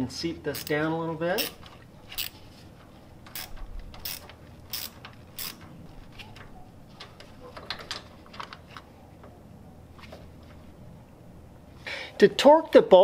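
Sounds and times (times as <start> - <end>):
ratchet wrench clicking: 0.5 - 0.8, 1.4 - 2.4, 3.3 - 5.6.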